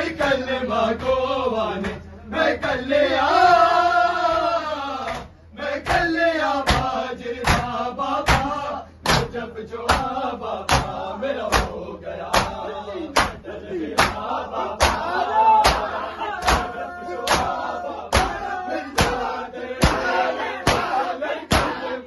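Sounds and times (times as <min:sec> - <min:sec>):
men chanting: 0:00.0 - 0:22.0
men slapping their chests: 0:05.0 - 0:12.6, 0:13.2 - 0:21.8.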